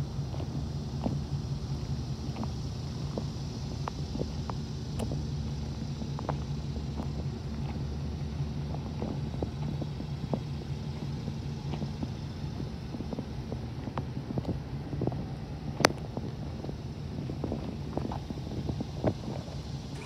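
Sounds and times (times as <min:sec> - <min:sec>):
truck engine idling: 0:00.0 - 0:20.0
light ticks: 0:13.0 - 0:16.8.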